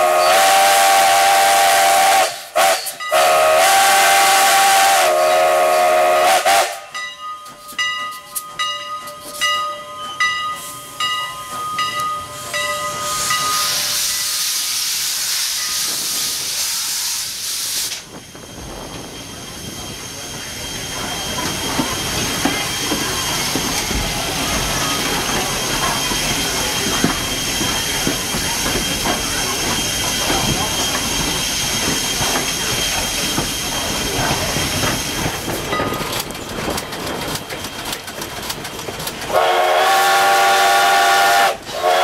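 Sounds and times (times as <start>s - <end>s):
steam locomotive hissing: 0.0s - 42.0s
train rumbling along track: 0.0s - 42.0s
crossing bell ringing: 3.0s - 3.4s, 6.8s - 14.4s, 35.6s - 36.4s.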